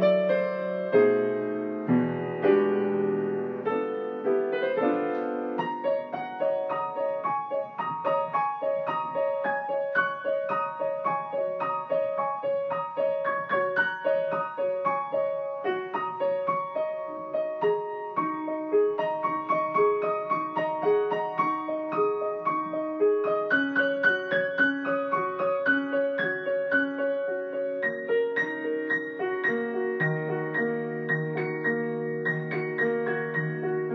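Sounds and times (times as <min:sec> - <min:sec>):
solo piano playing: 0:00.0 - 0:33.9.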